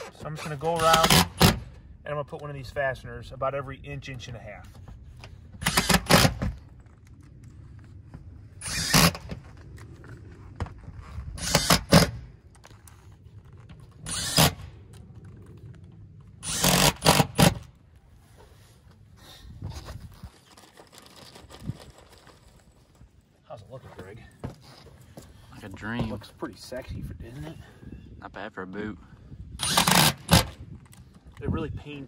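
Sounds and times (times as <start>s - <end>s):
impact driver bursts: 0.7s - 1.8s, 5.6s - 6.5s, 8.6s - 9.4s, 11.4s - 12.2s, 14.0s - 14.6s, 16.4s - 17.7s, 29.6s - 30.6s.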